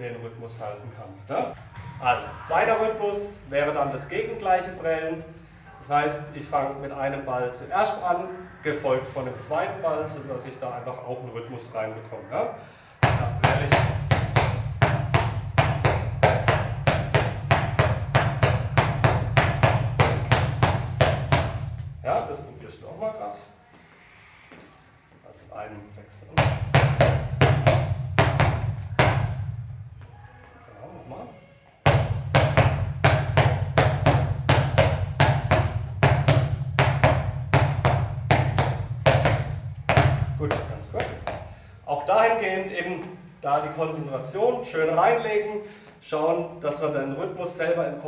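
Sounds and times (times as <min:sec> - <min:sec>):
balls bouncing on hard floor: 0:13.0 - 0:22.0, 0:26.4 - 0:30.2, 0:31.8 - 0:41.6.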